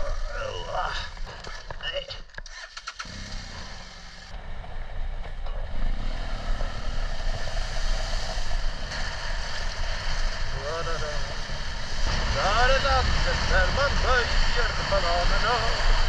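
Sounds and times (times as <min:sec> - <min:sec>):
motorcycle engine running: 0:00.0 - 0:16.0
wind and road noise: 0:00.0 - 0:16.0.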